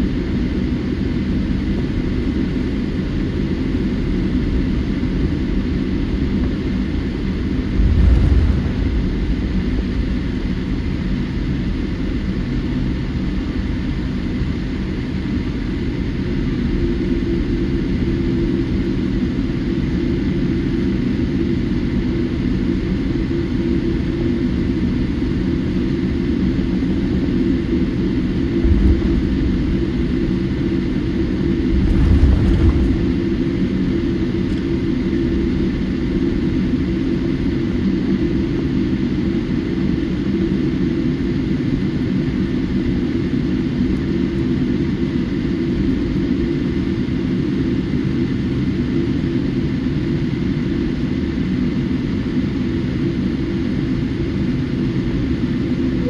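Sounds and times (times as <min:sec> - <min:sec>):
airliner cabin engine rumble: 0:00.0 - 0:56.0
low bumps: 0:07.5 - 0:11.6, 0:28.5 - 0:34.0.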